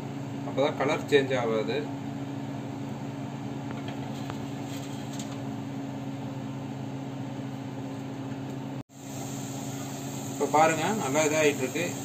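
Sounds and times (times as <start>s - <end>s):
low mechanical hum: 0.0s - 12.0s
donuts sizzling in oil: 8.9s - 12.0s.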